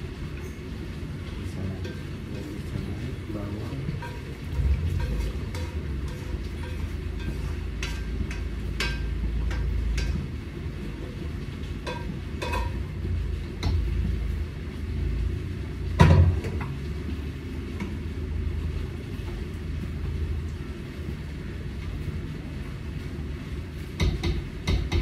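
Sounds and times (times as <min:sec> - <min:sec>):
steady low rumble: 0:01.0 - 0:16.0
light clicks of pan on grate: 0:05.0 - 0:10.3, 0:11.8 - 0:12.8.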